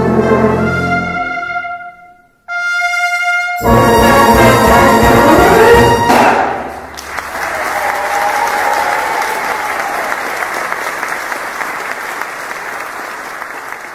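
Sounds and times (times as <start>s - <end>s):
brass band chord: 0.0s - 6.8s
audience applauding: 6.8s - 13.9s.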